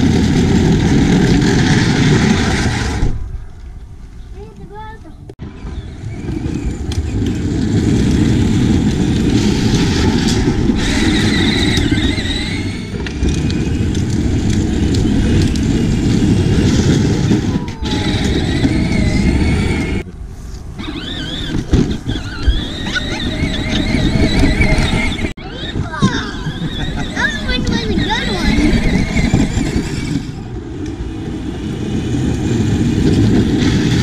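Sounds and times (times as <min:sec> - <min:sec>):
plastic wheels rumbling: 0:00.0 - 0:20.1, 0:20.8 - 0:34.0
high electric motor whine: 0:05.7 - 0:20.0.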